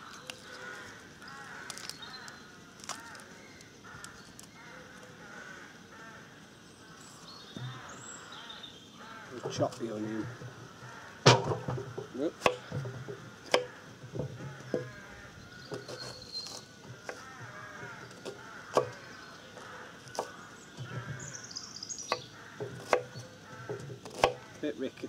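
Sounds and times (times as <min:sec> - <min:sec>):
knife chopping on wooden board: 0:22.6 - 0:24.4.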